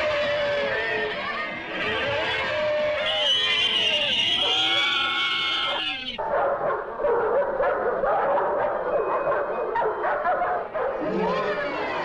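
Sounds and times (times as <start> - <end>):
dogs barking and snarling: 5.6 - 12.0.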